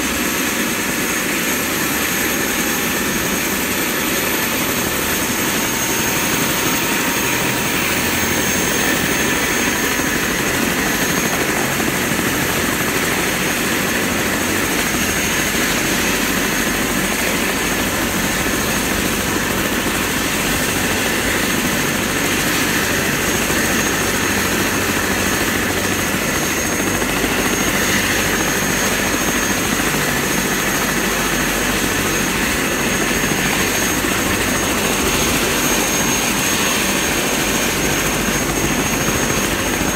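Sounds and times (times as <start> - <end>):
helicopter engine and rotors running: 0.0 - 39.9.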